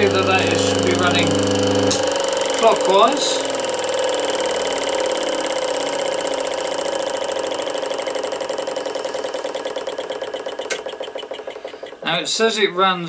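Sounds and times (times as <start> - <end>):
electric motor humming: 0.0 - 12.2.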